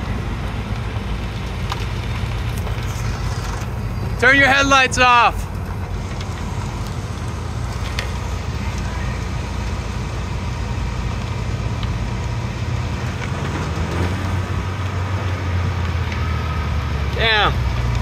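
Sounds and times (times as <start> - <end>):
car engine low rumble: 0.0 - 18.0.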